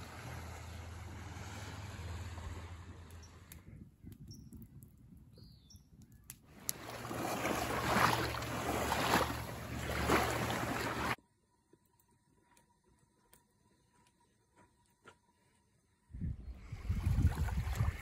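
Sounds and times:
small waves lapping on pebbles: 6.5s - 11.2s.

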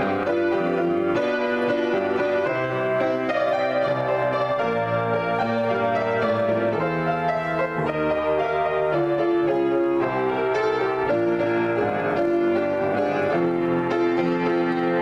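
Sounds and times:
solo piano improvisation: 0.0s - 15.0s.

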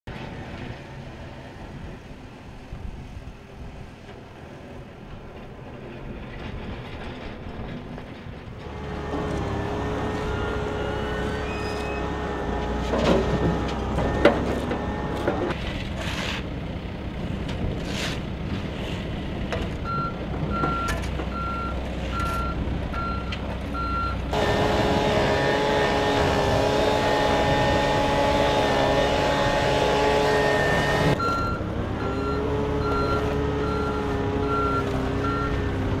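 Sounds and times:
engine with wavering whine: 8.6s - 16.5s, 24.0s - 36.0s
diesel engine running: 8.6s - 36.0s
reversing beeper: 9.0s - 12.5s, 30.0s - 35.6s.

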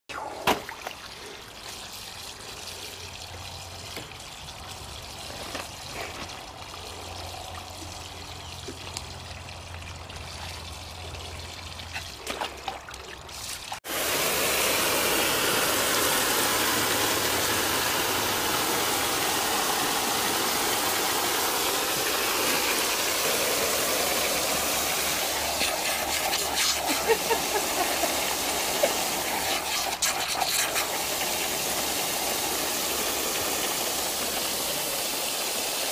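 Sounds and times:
hose water rushing: 0.1s - 35.9s.

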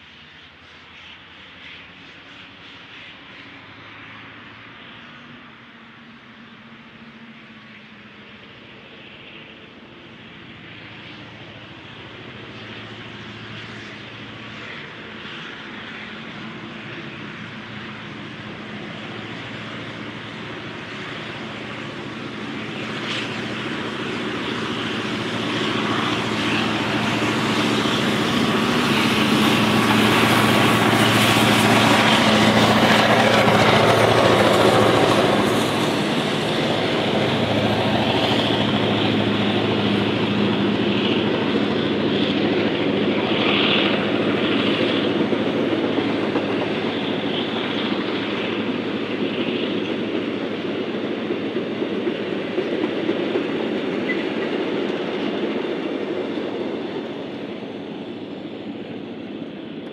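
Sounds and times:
steam locomotives passing: 0.0s - 59.9s
carriage wheels clickety-clack: 42.1s - 57.0s.

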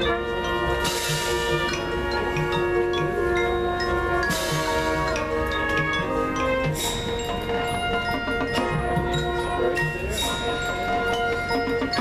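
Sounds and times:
mallet keyboards and chimes ringing: 0.0s - 12.0s
marching band music: 0.0s - 12.0s.

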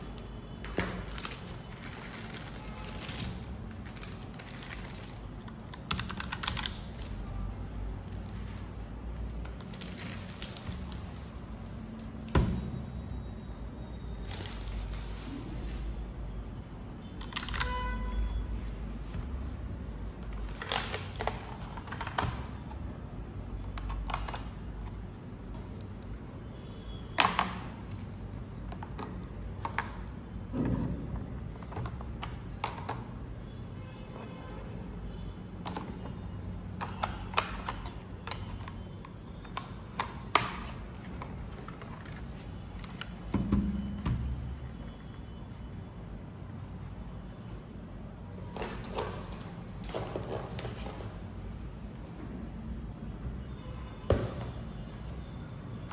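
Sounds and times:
plastic keyboard clicks: 5.4s - 7.2s, 17.2s - 17.8s, 20.5s - 22.8s, 23.6s - 24.7s, 36.8s - 42.2s.

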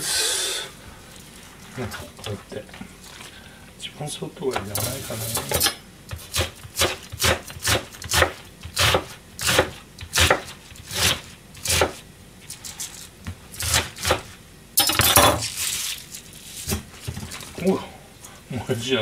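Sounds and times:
rustling scrape of cabbage: 4.7s - 5.5s, 15.4s - 17.6s
knife chopping cabbage on board: 5.4s - 12.0s, 13.5s - 14.4s.

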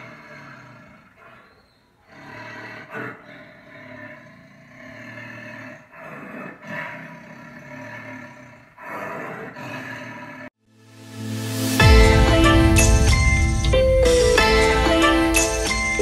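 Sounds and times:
tiger growling and snarling: 0.0s - 10.5s.

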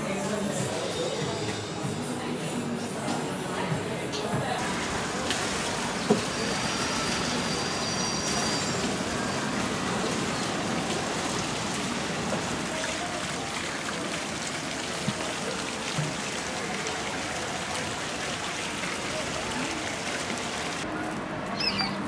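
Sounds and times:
water pattering and trickling: 4.6s - 22.0s.

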